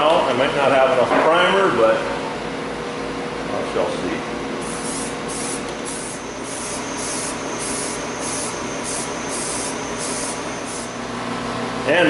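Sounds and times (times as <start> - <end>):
aerosol can spraying in bursts: 4.6 - 11.1.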